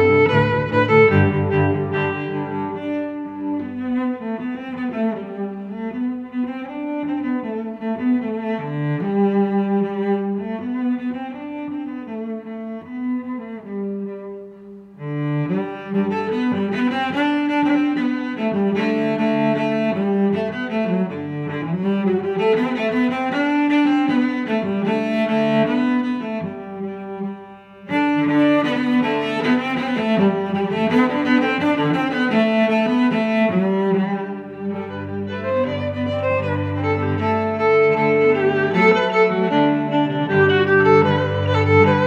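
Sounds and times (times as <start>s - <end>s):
instrumental music: 0.0s - 42.0s.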